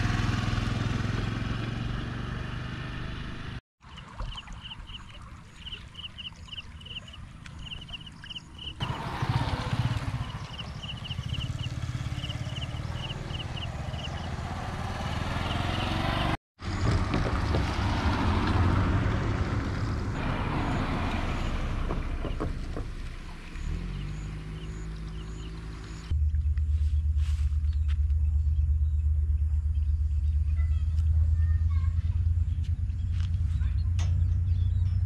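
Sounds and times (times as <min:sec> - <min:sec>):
motorcycle passing: 0:00.0 - 0:03.6, 0:07.6 - 0:35.0
car driving past: 0:08.8 - 0:26.4.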